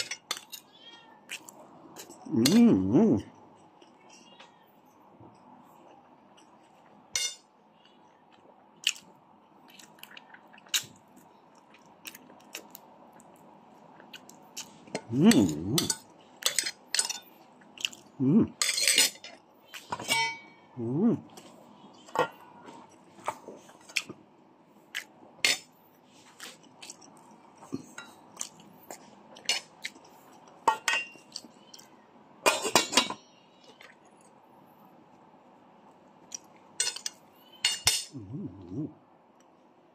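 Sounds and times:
short voice sounds: 2.3s - 3.3s, 15.1s - 15.9s, 18.2s - 18.6s, 20.8s - 21.3s, 38.1s - 39.0s
cutlery clinking on a plate: 7.2s - 7.5s, 18.6s - 20.6s, 30.6s - 31.5s, 32.4s - 33.2s, 36.8s - 38.2s.

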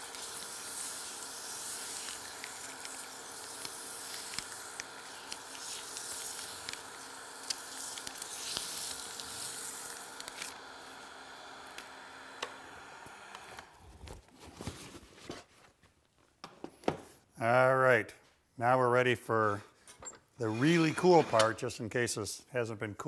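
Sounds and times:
sandpaper hissing on spinning wood: 0.0s - 11.2s, 20.4s - 21.6s
wood lathe humming: 20.4s - 21.5s.

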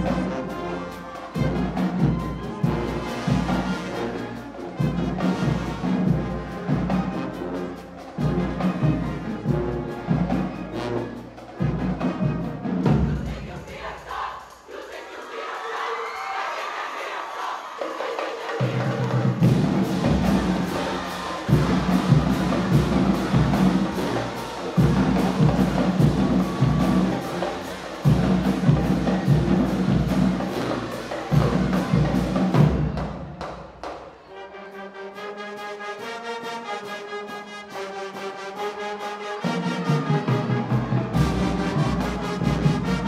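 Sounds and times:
marching band brass chords: 0.0s - 15.9s, 16.6s - 43.0s
drumline cadence: 0.0s - 34.3s, 39.4s - 43.0s
horns playing held chords: 19.4s - 32.9s.

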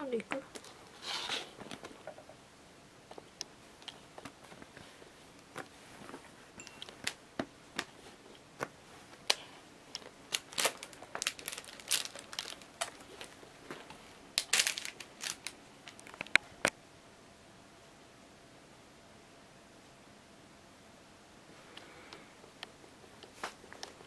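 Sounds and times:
rustling: 3.1s - 16.4s.

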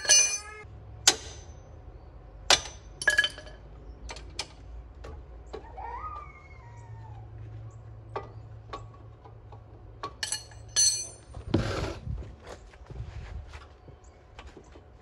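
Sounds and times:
ringing metal clinks: 0.0s - 0.6s, 2.6s - 3.6s, 10.2s - 11.3s.

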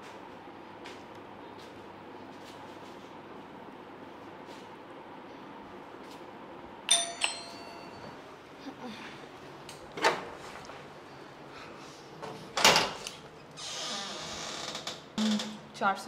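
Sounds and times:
electronic doorbell ding-dong chime: 6.9s - 8.2s.

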